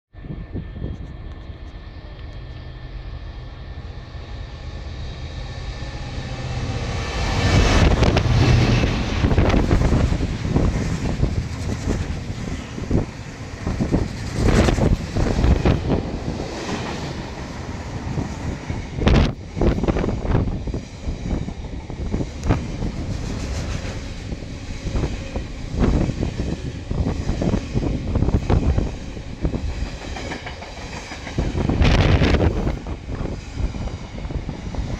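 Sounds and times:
freight train rumbling past: 0.1s - 34.9s
train wheels knocking: 25.8s - 32.6s.

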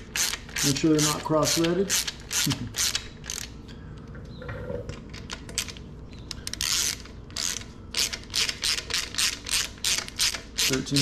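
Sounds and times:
socket ratchet clicking: 5.2s - 11.0s.

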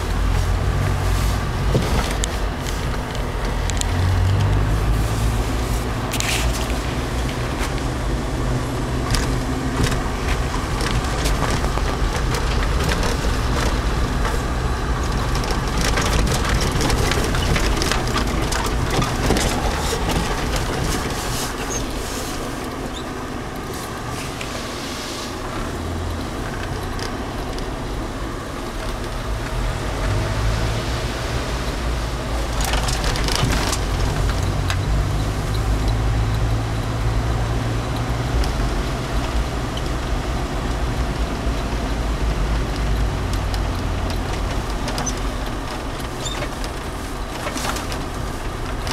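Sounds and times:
engine drone inside vehicle: 0.0s - 48.9s
knocks and rattles on rough road: 0.0s - 48.9s.

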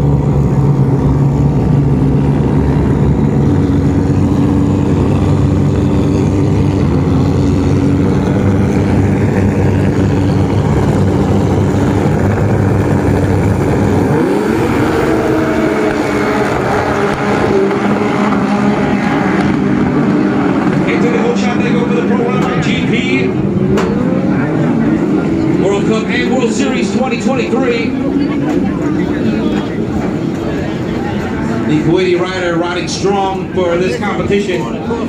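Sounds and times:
jet ski engines revving: 0.0s - 35.0s.

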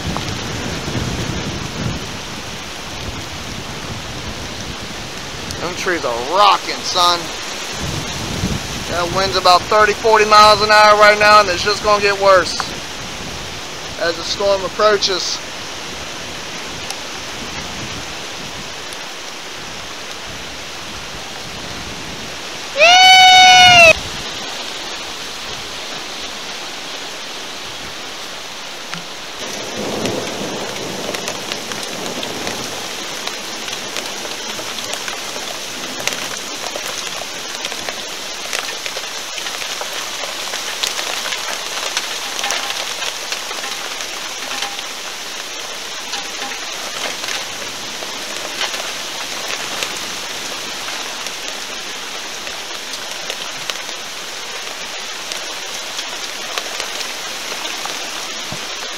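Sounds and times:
heavy rain: 0.0s - 58.9s
strong wind through trees: 0.0s - 58.9s
sharp raindrop ticks: 5.1s - 5.9s, 28.8s - 58.9s
deep thunder rumble: 29.4s - 36.5s.

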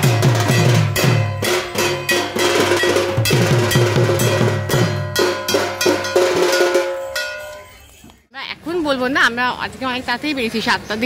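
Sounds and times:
drums beating in steady rhythm: 0.0s - 7.8s
metal gong ringing: 0.3s - 7.7s.

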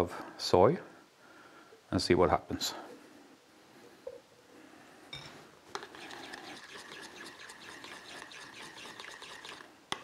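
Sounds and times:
metal spoon stirring in a bowl: 5.2s - 9.7s.

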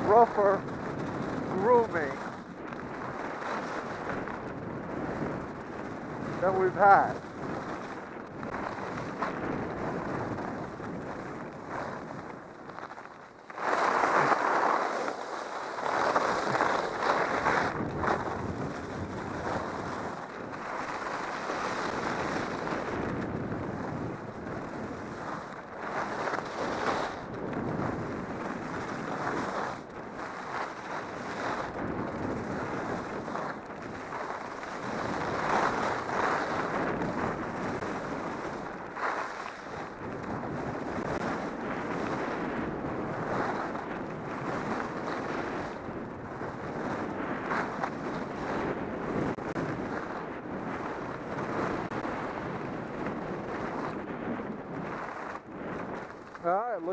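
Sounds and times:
skis scraping on snow: 0.0s - 56.9s
wind rushing over microphone: 0.0s - 56.9s.

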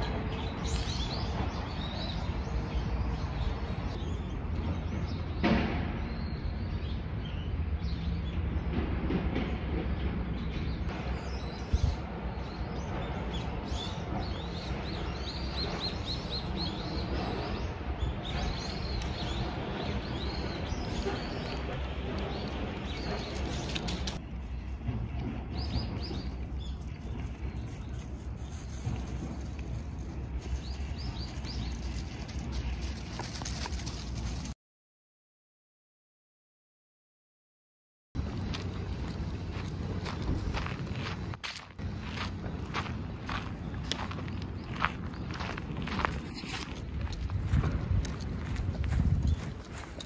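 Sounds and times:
steady low rumble: 7.2s - 34.5s, 38.2s - 50.0s
small birds chirping: 10.7s - 34.5s, 38.4s - 50.0s.

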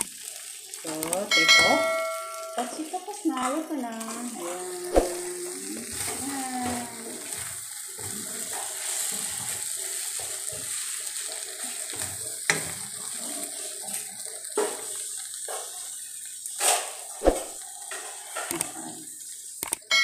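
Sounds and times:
food sizzling in a wok: 0.0s - 20.0s
spatula knocking and scraping pan: 5.9s - 15.8s.

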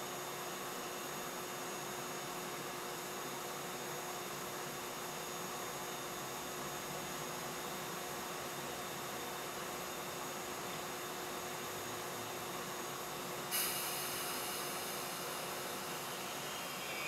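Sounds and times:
machinery hum and hiss: 0.0s - 17.0s
constant whine: 13.8s - 17.0s.

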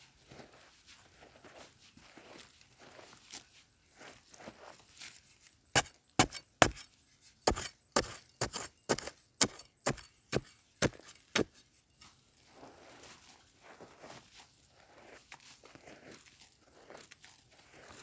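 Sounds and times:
metal bar striking stony soil: 5.0s - 12.2s.

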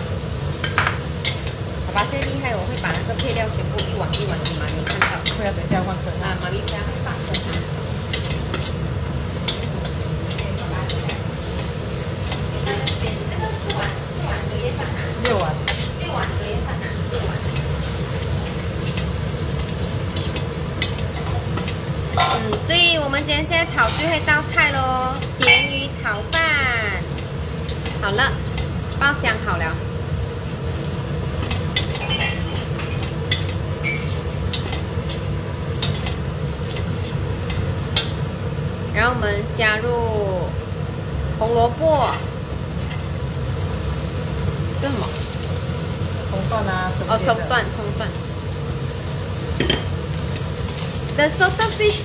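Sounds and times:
garlic sizzling in hot oil: 0.0s - 52.0s
metal spatula scraping wok: 0.3s - 22.8s, 23.4s - 38.2s
spatula clinking on wok: 31.4s - 36.9s.

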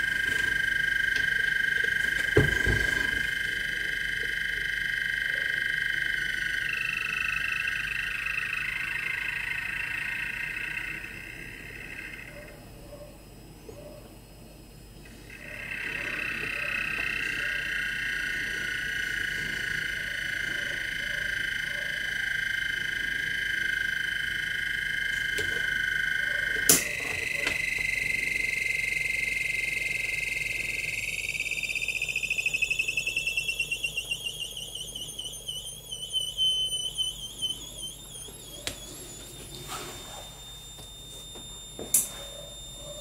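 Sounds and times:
high-pitched electronic whine: 0.0s - 43.0s.

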